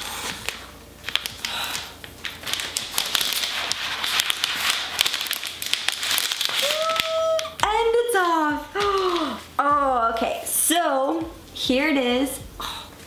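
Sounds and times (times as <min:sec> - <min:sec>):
plastic wrap peeling and crackling: 0:00.0 - 0:09.6.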